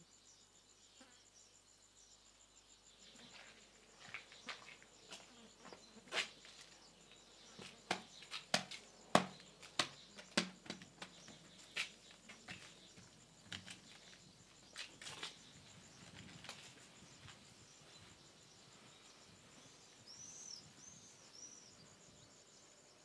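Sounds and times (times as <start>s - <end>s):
footsteps on stone: 3.3s - 17.5s
suitcase knocking on wooden bench: 7.9s - 11.4s.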